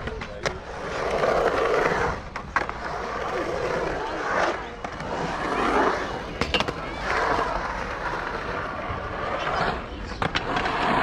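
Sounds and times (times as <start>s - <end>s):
skateboard wheels rolling on concrete: 0.0s - 11.0s.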